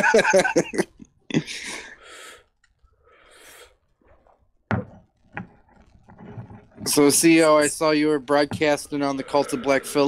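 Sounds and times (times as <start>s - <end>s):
person speaking: 6.8s - 10.0s.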